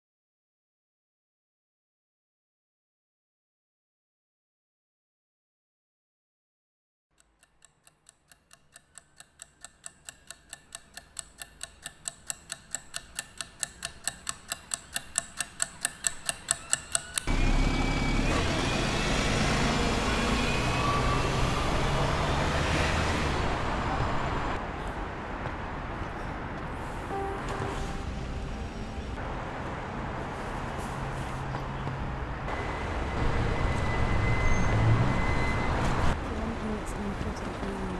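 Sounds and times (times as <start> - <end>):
clock ticking fast: 7.1 - 17.3
city street traffic: 11.4 - 37.9.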